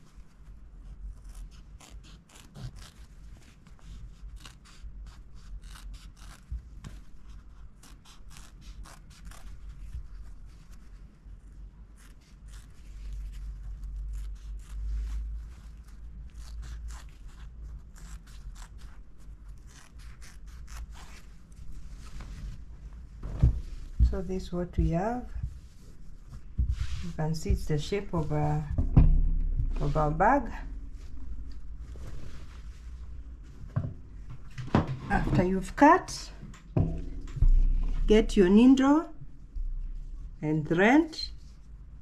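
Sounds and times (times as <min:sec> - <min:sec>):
scissors snipping fabric: 0:01.2 - 0:03.2, 0:04.2 - 0:09.6, 0:12.0 - 0:21.3.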